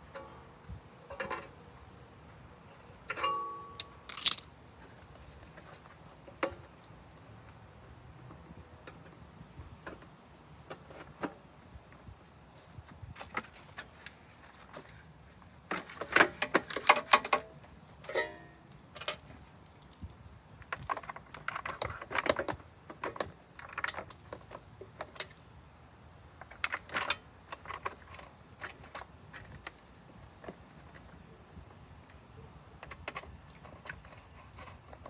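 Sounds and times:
hand tool clicking and rattling: 3.0 - 4.5
plastic housing being fitted: 4.1 - 4.5.

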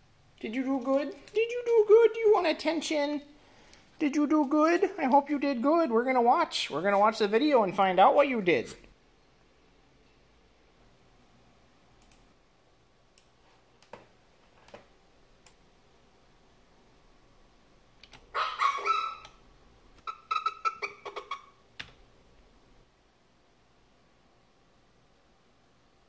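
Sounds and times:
computer mouse clicks: 12.0 - 12.3, 18.0 - 18.3
small dog barking and yapping: 18.3 - 19.3.

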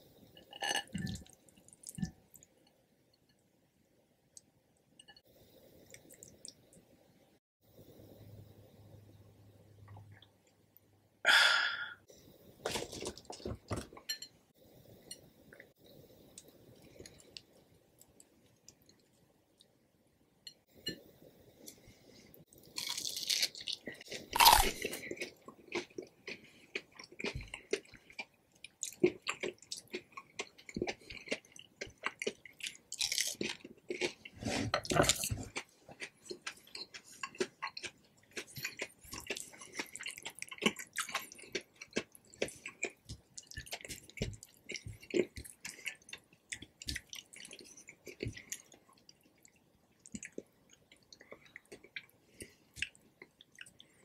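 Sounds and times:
chewing and crunching: 22.6 - 54.0
crunchy bites into fried food: 22.8 - 24.8.

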